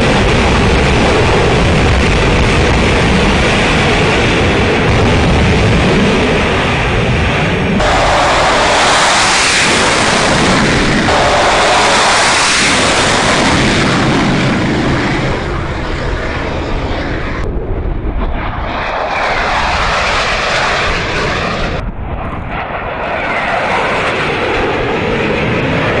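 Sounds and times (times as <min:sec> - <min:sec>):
jet engines roaring: 0:00.0 - 0:26.0.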